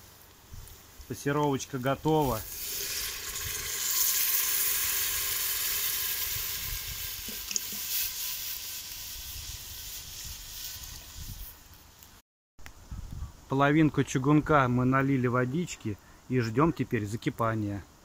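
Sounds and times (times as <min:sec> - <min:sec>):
hot oil sizzling and hissing: 0:01.8 - 0:12.1
water pouring from plastic bottle: 0:02.4 - 0:09.2.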